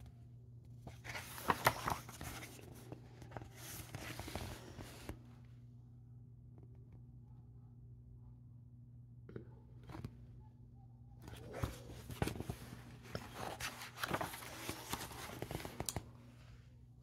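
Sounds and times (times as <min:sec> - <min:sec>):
faint low hum: 0:00.0 - 0:17.0
paper page rustling: 0:00.8 - 0:05.2, 0:11.2 - 0:16.1.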